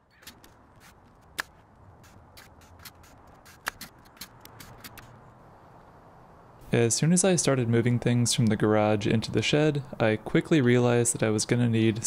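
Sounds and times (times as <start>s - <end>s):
sharp crack: 0.0s - 5.2s.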